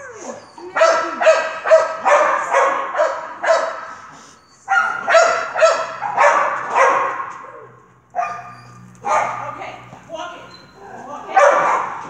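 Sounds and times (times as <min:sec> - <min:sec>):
dog barking: 0:00.6 - 0:04.0, 0:04.7 - 0:09.6, 0:11.3 - 0:12.0.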